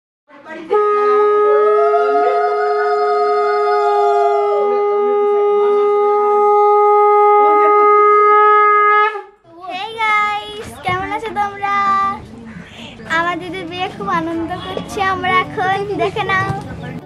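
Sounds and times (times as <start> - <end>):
conch shell long note: 0.7 - 9.4.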